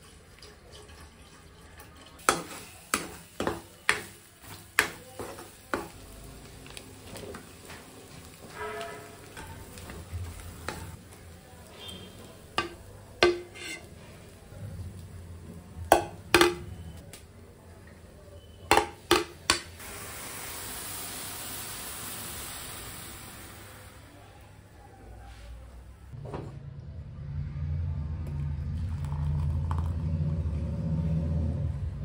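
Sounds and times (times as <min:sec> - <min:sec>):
metal spoon scraping frying pan: 0:08.4 - 0:10.0, 0:11.8 - 0:13.9
spoon knocking against pan: 0:12.6 - 0:13.8, 0:15.9 - 0:16.7, 0:18.7 - 0:19.7
milk hissing as it boils: 0:19.8 - 0:24.6.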